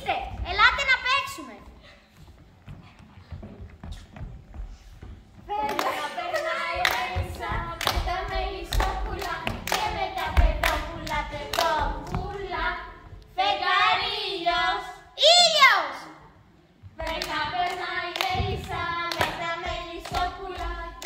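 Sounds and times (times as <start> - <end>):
voices singing folk song: 5.5 - 15.2, 17.0 - 21.0.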